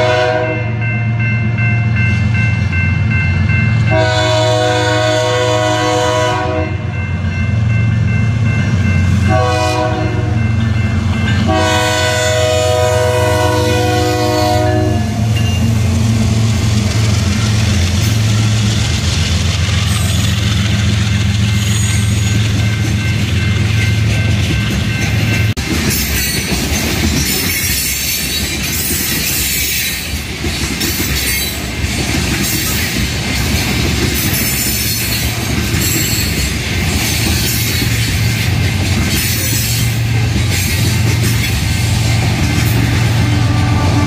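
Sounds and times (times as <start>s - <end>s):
train horn blasts: 0.0s - 0.9s, 3.8s - 7.0s, 9.2s - 10.6s, 11.4s - 15.8s, 43.0s - 44.0s
train wheels clickety-clack: 9.0s - 44.0s.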